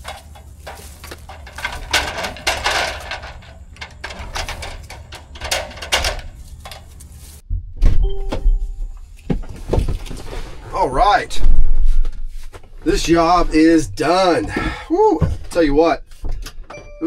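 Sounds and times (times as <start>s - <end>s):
knocks clicks and clatters: 0.0s - 7.0s
short steady tone: 8.0s - 8.9s.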